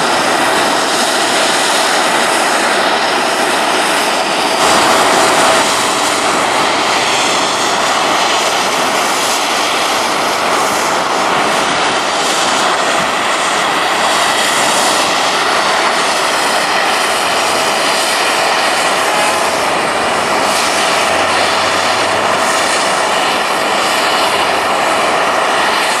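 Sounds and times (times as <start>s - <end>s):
jet engines rushing: 0.0s - 26.0s
thin steady whine: 0.0s - 26.0s.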